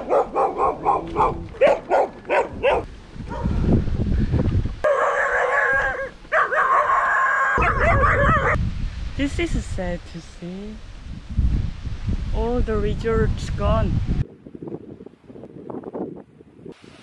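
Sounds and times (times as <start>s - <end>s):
dogs howling: 0.0s - 3.4s, 4.8s - 8.6s
dogs barking: 0.0s - 3.5s, 4.8s - 8.6s.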